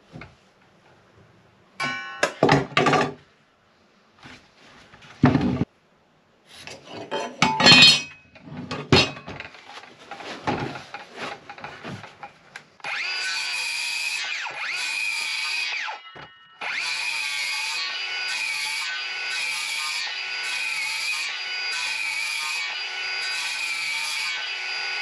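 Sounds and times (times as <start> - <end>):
knocks and clatter of wood: 5.0 - 5.7, 8.6 - 12.4
circular saw cutting wood: 12.8 - 25.0.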